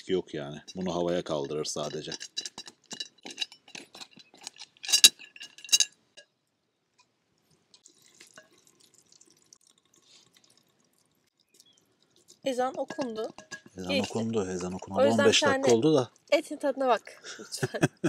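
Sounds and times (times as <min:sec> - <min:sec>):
spoon scraping pot: 0:00.6 - 0:05.9, 0:12.5 - 0:15.8.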